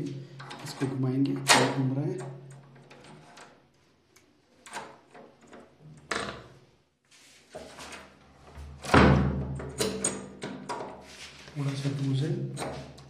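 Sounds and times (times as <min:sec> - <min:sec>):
lock clicking and rattling: 0:09.6 - 0:11.0.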